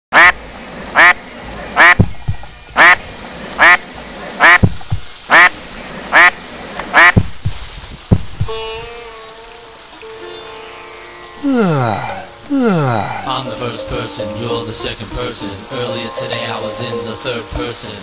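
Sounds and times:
duck quacking: 0.2 - 0.4, 1.0 - 1.2, 1.8 - 2.0, 2.8 - 3.0, 3.6 - 3.8, 4.4 - 4.7, 5.3 - 7.2
soft low thumps: 1.9 - 2.6, 7.1 - 8.5.

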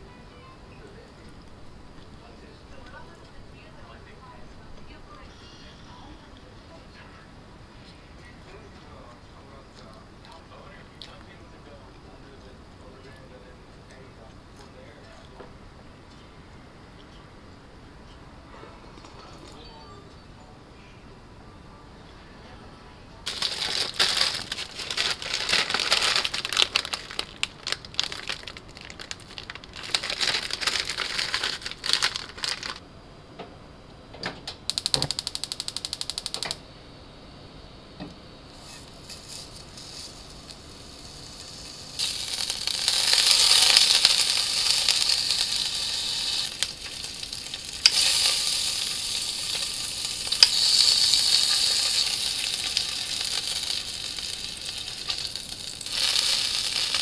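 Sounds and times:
crackling noise: 23.2 - 32.8, 34.5 - 36.7, 38.4 - 57.0
meat sizzling in a frying pan: 23.3 - 32.7, 38.5 - 57.0
fast even clicking: 34.7 - 36.6.

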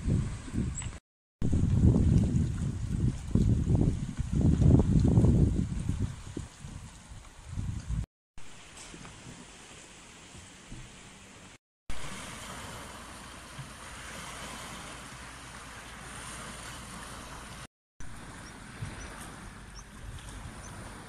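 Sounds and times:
wind rumble on microphone: 0.0 - 8.1, 11.9 - 21.0
small waves lapping at shore: 8.4 - 21.0.

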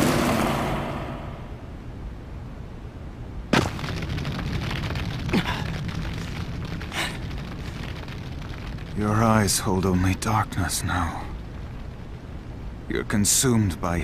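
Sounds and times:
low rumble: 3.4 - 14.0
sharp explosive cracks: 3.5 - 12.5.

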